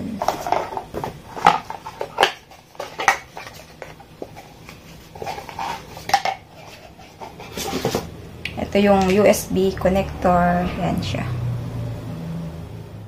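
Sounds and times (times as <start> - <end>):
cardboard and plastic packaging rustling: 0.1 - 8.2.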